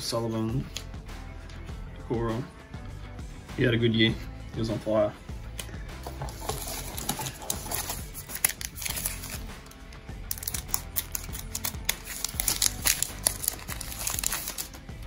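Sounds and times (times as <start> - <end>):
background music: 0.0 - 15.0
wrapper crinkling: 6.2 - 9.5, 10.3 - 14.8.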